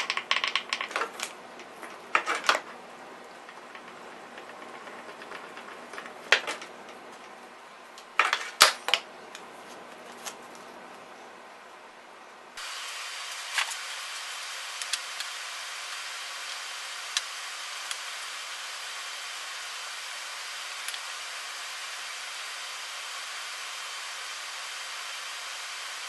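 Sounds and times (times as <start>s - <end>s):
wooden toy parts clicking: 0.0s - 2.7s, 3.4s - 7.3s
steady background hiss: 0.0s - 26.0s.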